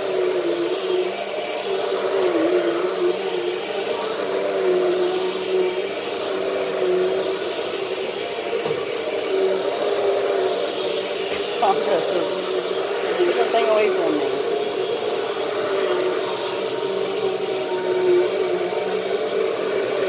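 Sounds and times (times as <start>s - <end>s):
vacuum cleaner running: 0.0s - 20.0s.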